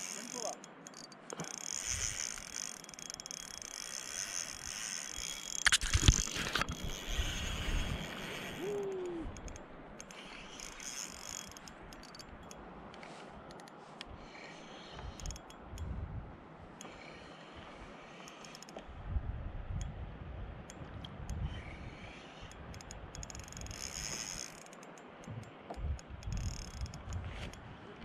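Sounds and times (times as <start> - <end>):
fishing reel ratcheting: 0.0 - 12.6, 13.4 - 16.0, 18.0 - 18.8, 20.7 - 25.1, 25.8 - 27.6.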